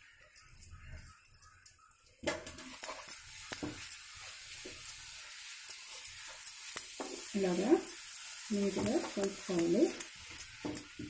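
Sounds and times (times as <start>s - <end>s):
boiling syrup hissing: 2.4s - 11.0s
spatula scraping a pan: 2.6s - 11.0s.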